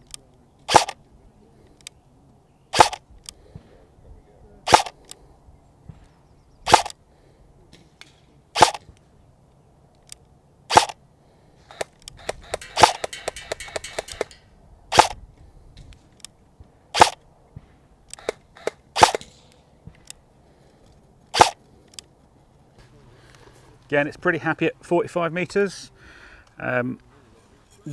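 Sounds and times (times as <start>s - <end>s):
airsoft gun single shots: 0.7s - 1.0s, 2.7s - 3.0s, 4.7s - 5.0s, 6.6s - 7.0s, 8.6s - 8.9s, 10.7s - 11.0s, 11.7s - 14.3s, 14.9s - 15.2s, 16.9s - 17.2s, 18.2s - 19.5s, 21.3s - 21.6s.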